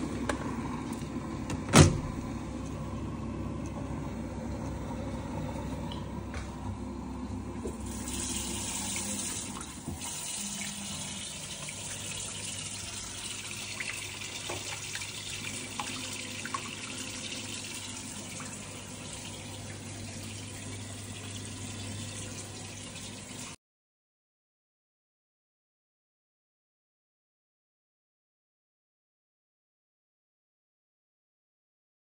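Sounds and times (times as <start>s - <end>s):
tap water running into sink: 7.6s - 23.6s.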